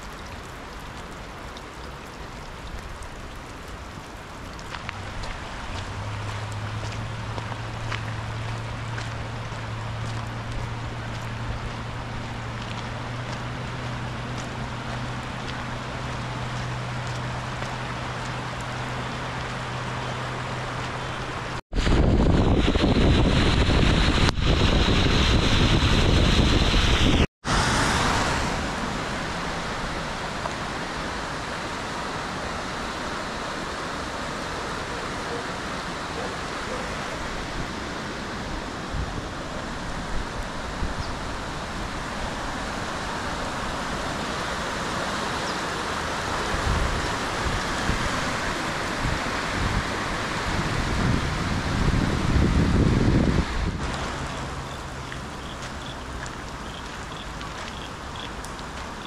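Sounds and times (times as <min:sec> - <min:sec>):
flooded creek rushing: 0:00.0 - 0:59.0
rain: 0:00.0 - 0:59.0
wind: 0:00.0 - 0:59.0
loud steady rush: 0:17.7 - 0:55.1.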